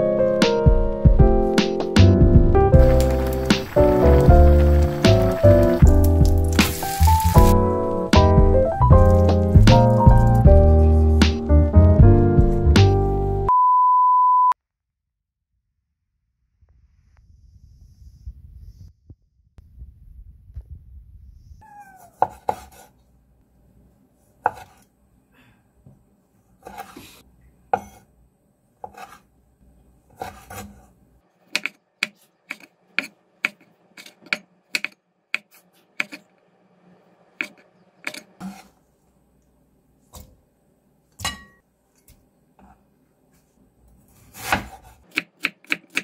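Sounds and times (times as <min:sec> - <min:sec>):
knife chopping on wooden board: 0:22.2 - 0:22.9, 0:24.4 - 0:24.8, 0:28.8 - 0:29.2, 0:30.2 - 0:30.8, 0:31.5 - 0:36.2, 0:44.3 - 0:46.0.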